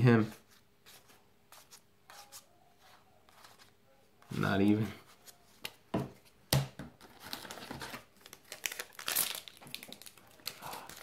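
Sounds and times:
foil wrapper crinkling: 0:07.0 - 0:11.0.

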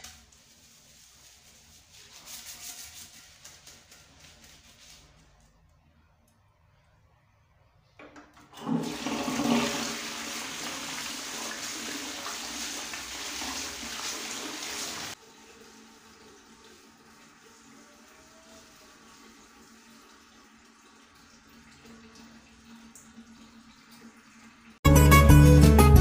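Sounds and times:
water rushing into toilet bowl: 0:08.5 - 0:24.8
water trickling: 0:11.0 - 0:24.8.

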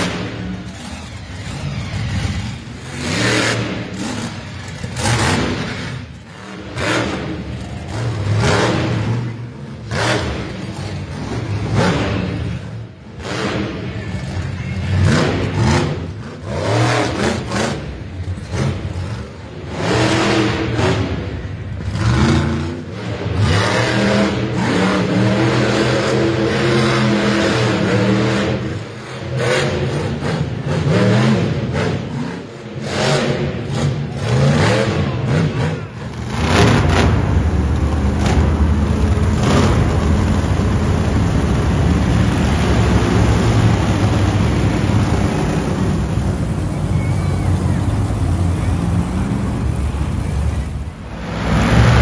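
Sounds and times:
monster truck engines revving: 0:00.0 - 0:52.0.

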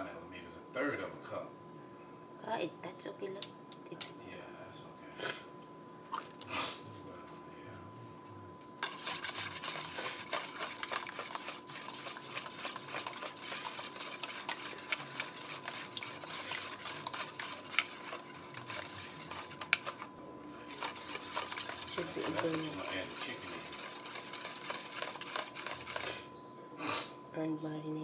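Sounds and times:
whisk ticking against plastic bowl: 0:08.8 - 0:26.1.

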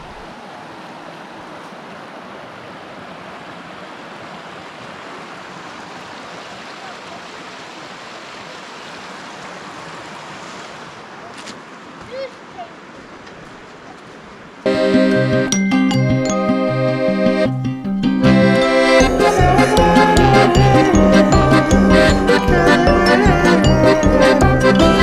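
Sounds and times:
creek water rushing over rocks: 0:00.0 - 0:14.7.

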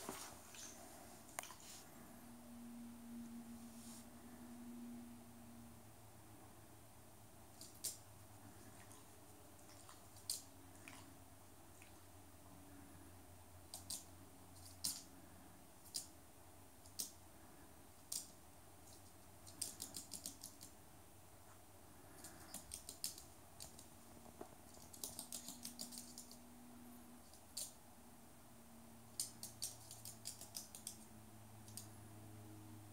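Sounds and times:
bird claws clicking on floor: 0:29.2 - 0:31.0.

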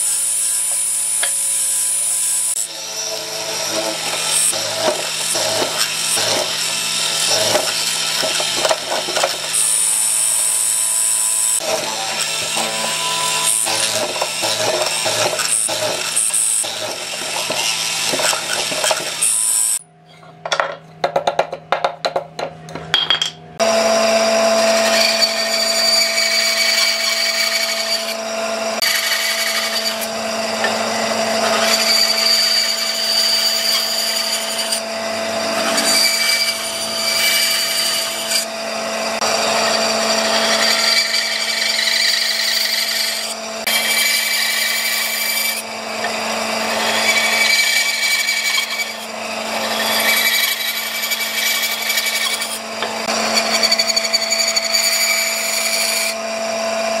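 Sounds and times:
band saw cutting wood: 0:00.0 - 0:19.9, 0:23.6 - 0:57.0
knocks and clicks: 0:20.2 - 0:23.4.

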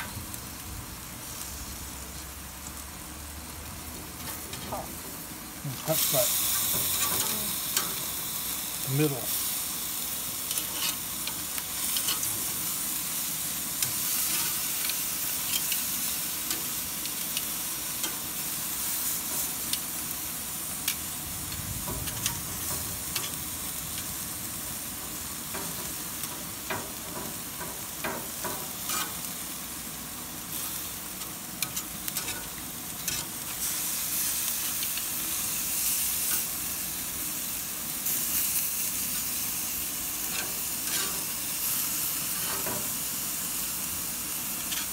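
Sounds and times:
chicken sizzling on a grill: 0:00.0 - 0:44.9
metal tongs clicking on grill grates: 0:05.9 - 0:08.1, 0:10.4 - 0:20.0, 0:20.8 - 0:24.3, 0:25.1 - 0:29.5, 0:30.4 - 0:36.5, 0:40.2 - 0:43.0, 0:44.3 - 0:44.9.

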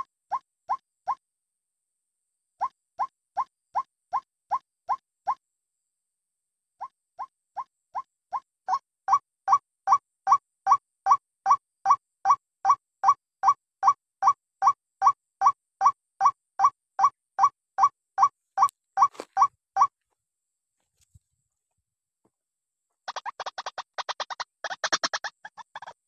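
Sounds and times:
bird rising kwak calls: 0:23.1 - 0:26.0.

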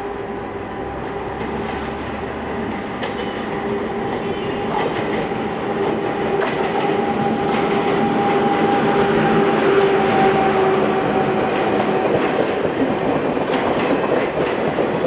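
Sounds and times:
electric train passing: 0:00.0 - 0:15.0
wheels clicking over rail joints: 0:11.2 - 0:15.0.

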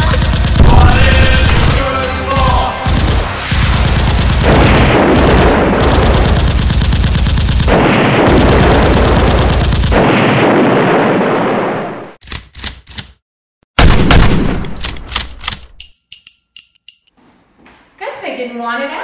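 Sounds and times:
automatic gunfire: 0:00.0 - 0:10.2.

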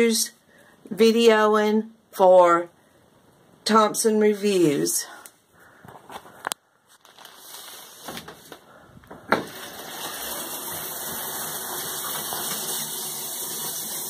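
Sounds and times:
shower water spraying: 0:09.4 - 0:14.0.

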